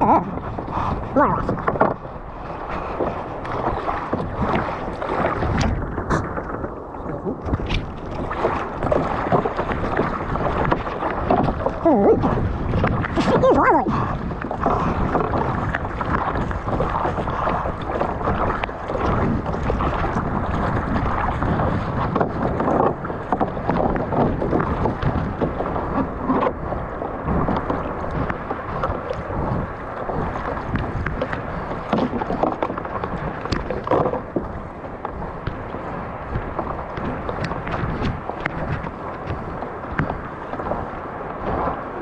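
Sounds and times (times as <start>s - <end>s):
water sloshing around a kayak: 0.0s - 42.0s
water slaps: 3.4s - 26.6s.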